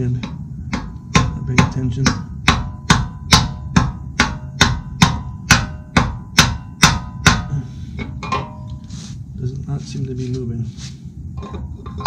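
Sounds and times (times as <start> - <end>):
mallet hammering on metal wrench: 0.0 - 8.6.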